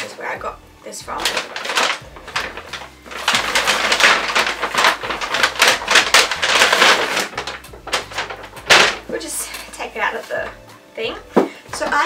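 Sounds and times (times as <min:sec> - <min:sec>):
paper and packaging crinkling: 0:01.1 - 0:09.6.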